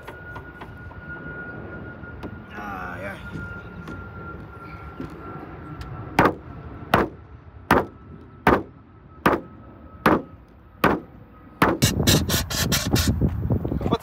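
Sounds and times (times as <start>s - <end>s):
blows on car sheet metal: 6.2s - 13.6s.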